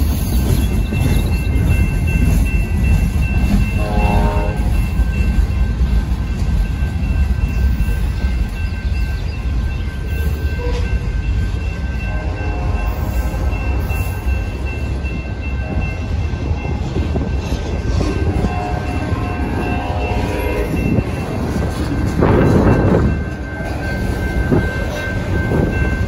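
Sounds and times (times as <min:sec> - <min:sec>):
train wheels rumbling on track: 0:00.0 - 0:26.0.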